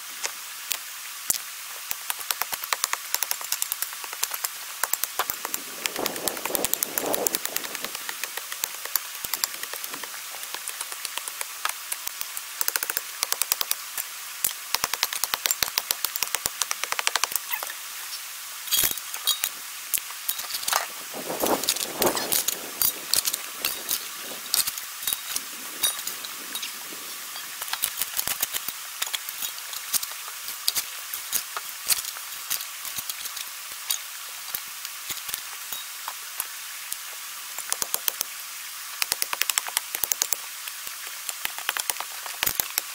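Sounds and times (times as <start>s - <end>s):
crunching and scraping of gravel: 5.2s - 11.1s, 20.3s - 30.6s
stone clinking on stone: 18.7s - 19.6s, 20.2s - 20.9s, 22.2s - 27.9s, 35.7s - 36.0s.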